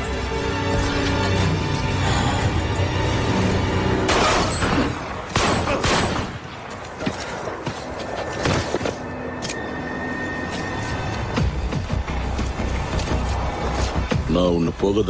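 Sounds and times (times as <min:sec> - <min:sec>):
dramatic film score: 0:00.0 - 0:15.0
gunshots: 0:04.1 - 0:06.5.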